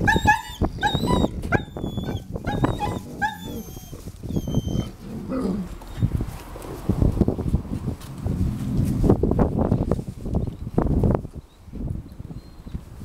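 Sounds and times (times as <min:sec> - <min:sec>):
dogs whining and yipping: 0:00.0 - 0:06.3.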